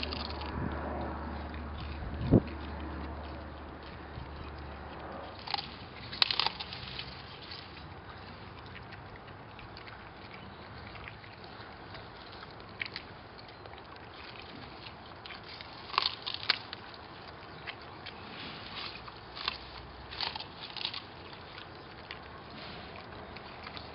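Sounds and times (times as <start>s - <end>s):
dogs chewing plant stalks: 0.0s - 23.9s
steady outdoor hiss: 0.0s - 23.9s.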